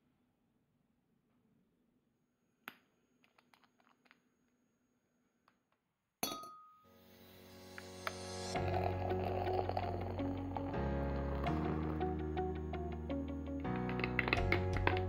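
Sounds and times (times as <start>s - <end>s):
background music: 7.0s - 15.0s.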